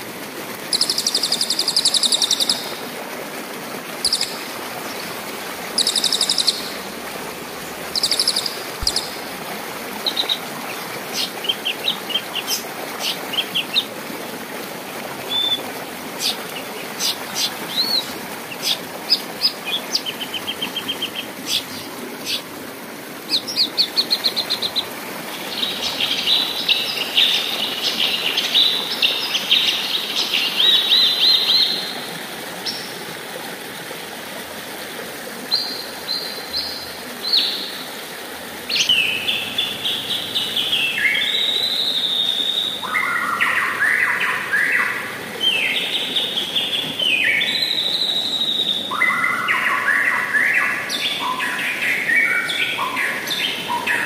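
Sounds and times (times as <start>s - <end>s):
river rushing: 0.0s - 54.0s
songbirds chirping and whistling: 5.8s - 6.7s, 7.9s - 9.2s, 15.3s - 15.6s, 38.8s - 54.0s.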